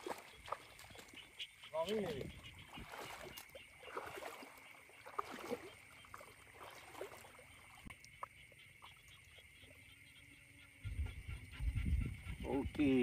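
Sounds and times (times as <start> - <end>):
light water splashes: 0.0 - 9.8.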